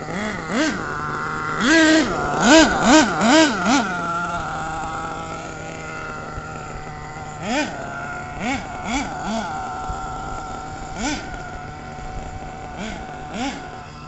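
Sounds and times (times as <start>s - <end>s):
steady motor hum: 0.0s - 14.0s
toy truck motor revving: 0.0s - 14.0s.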